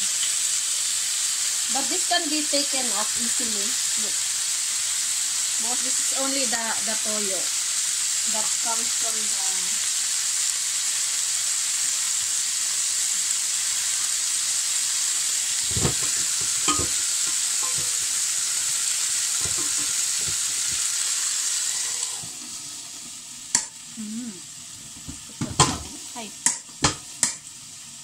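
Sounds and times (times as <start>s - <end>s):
chicken sizzling in a pan: 0.0s - 28.0s
pan halves clacking: 15.7s - 18.2s, 19.4s - 20.8s.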